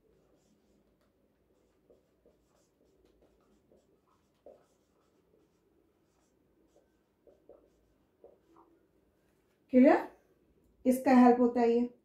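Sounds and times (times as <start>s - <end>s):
marker squeaking on whiteboard: 0.0s - 8.7s.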